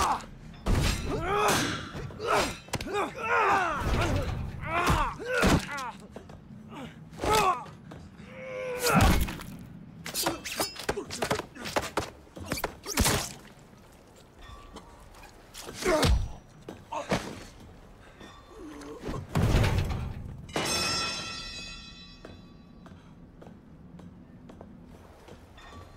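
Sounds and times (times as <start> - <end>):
men grunting: 1.1 - 6.1.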